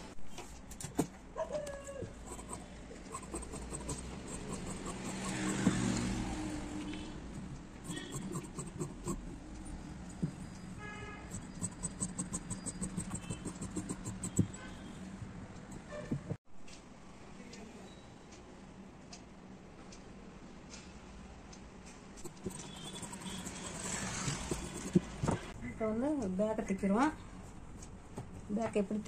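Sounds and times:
vehicle passing: 3.1 - 10.6, 22.3 - 25.6
shears cutting cloth: 3.2 - 6.0, 7.9 - 9.2, 11.4 - 14.6, 22.3 - 25.4.

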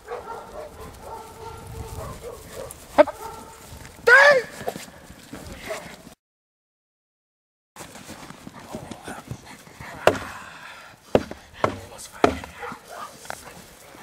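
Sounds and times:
dog barking sharply: 0.0 - 3.5, 12.5 - 13.2.

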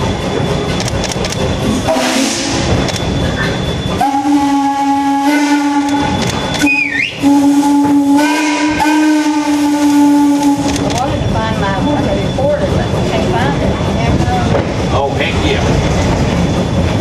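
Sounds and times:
steam locomotive whistle blasts: 1.8 - 2.8, 3.9 - 10.9.

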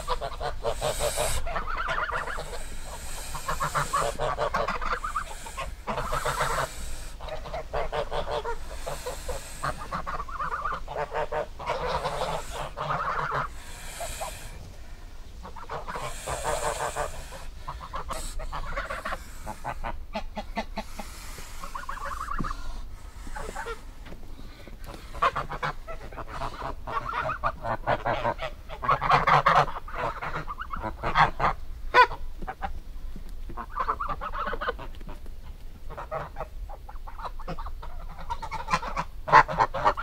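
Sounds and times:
geese honking: 0.0 - 32.6, 33.6 - 35.2, 35.9 - 40.0.

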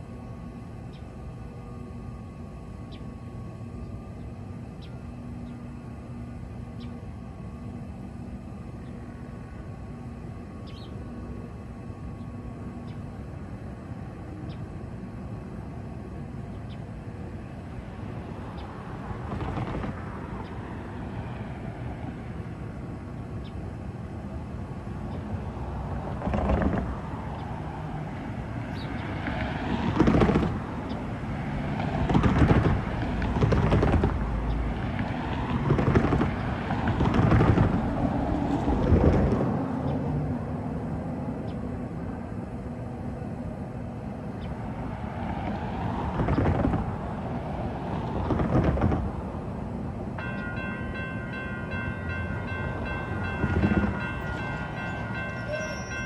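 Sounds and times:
low outdoor rumble: 0.0 - 56.0
faint high chirps: 54.9 - 56.0.

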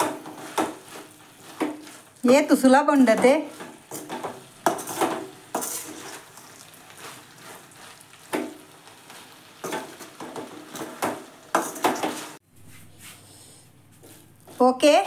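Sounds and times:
faint sizzle: 0.0 - 15.0
ladle scraping metal pan: 3.2 - 7.7.

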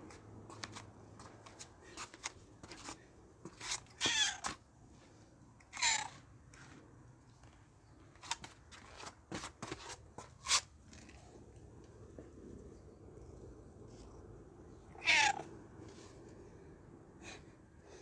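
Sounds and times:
cat meowing: 3.9 - 4.5, 5.7 - 6.2, 14.9 - 15.6.

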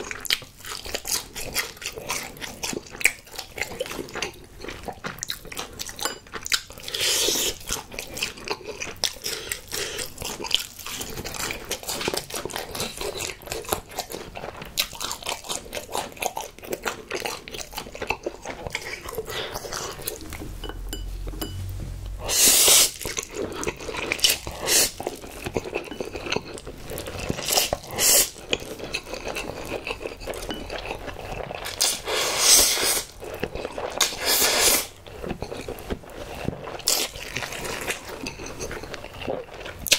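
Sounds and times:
chewing and crunching: 0.0 - 39.9
noodle slurps: 22.2 - 25.7, 31.6 - 33.2, 33.9 - 35.0.

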